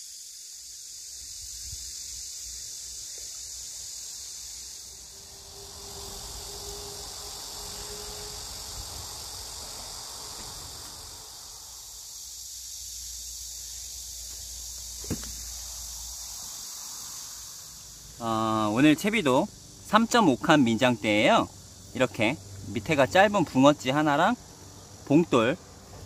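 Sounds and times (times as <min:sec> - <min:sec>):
insects chorus: 0:00.0 - 0:26.0
sharp knock: 0:15.0 - 0:15.6.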